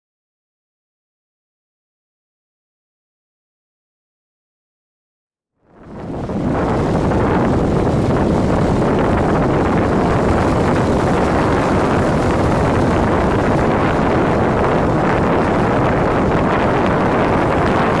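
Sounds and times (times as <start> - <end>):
loud wind on microphone: 5.6 - 18.0
outboard engines: 5.7 - 18.0.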